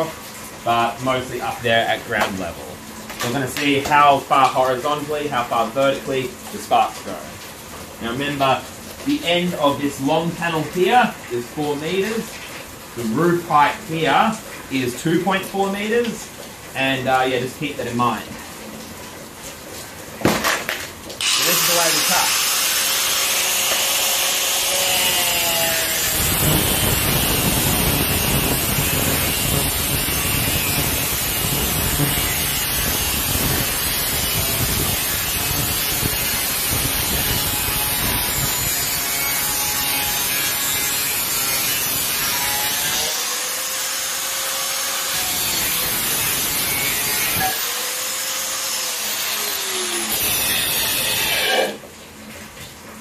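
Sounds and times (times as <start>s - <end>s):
angle grinder cutting metal: 21.2s - 51.8s.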